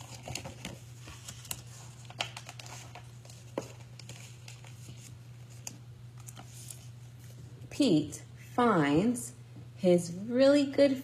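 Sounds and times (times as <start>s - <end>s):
book pages turning: 0.0s - 7.5s
steady low hum: 0.0s - 11.0s.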